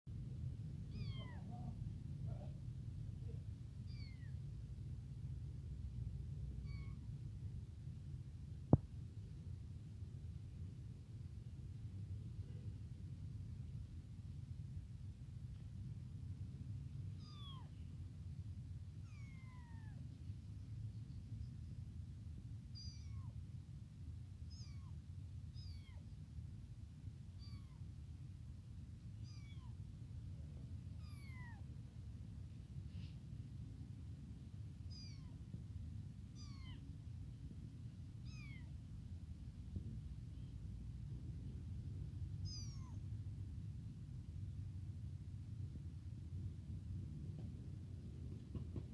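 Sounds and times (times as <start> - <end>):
low background rumble: 0.1 - 48.9
kitten mewing: 0.8 - 2.6, 3.3 - 4.3, 6.6 - 7.1, 17.1 - 17.8, 19.0 - 20.0, 22.8 - 23.4, 24.5 - 25.0, 25.6 - 26.1, 27.4 - 27.9, 29.2 - 29.8, 30.9 - 31.7, 34.9 - 35.4, 36.3 - 36.9, 38.2 - 38.8, 42.4 - 43.0.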